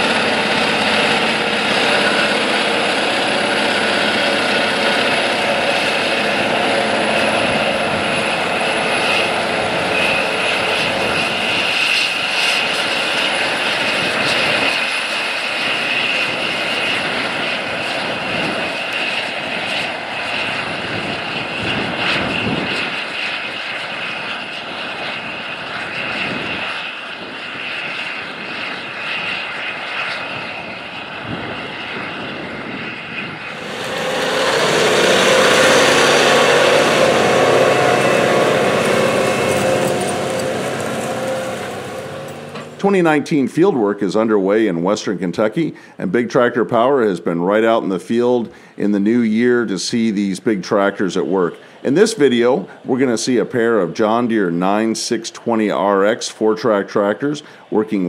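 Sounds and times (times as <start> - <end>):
tractor diesel engine under load: 0.0 - 21.9, 33.4 - 43.7
high engine whine: 0.0 - 44.8, 51.1 - 56.2.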